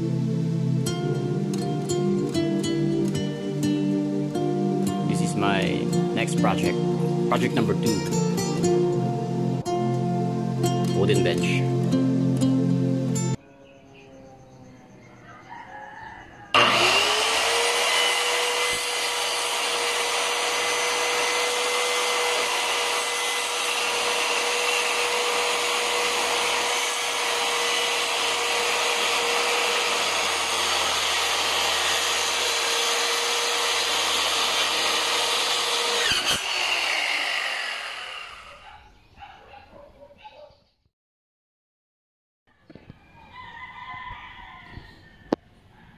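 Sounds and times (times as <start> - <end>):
circular saw cutting wood: 16.5 - 38.8.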